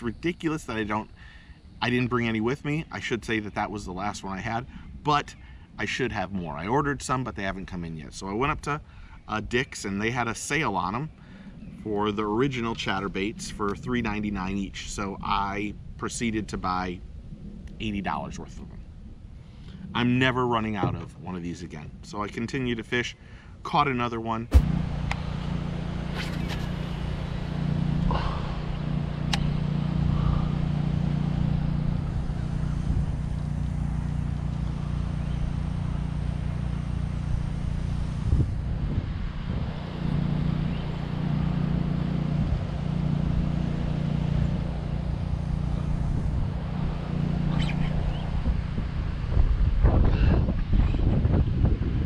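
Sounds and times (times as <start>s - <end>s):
wind buffeting microphone: 37.0s - 43.6s, 44.4s - 52.0s.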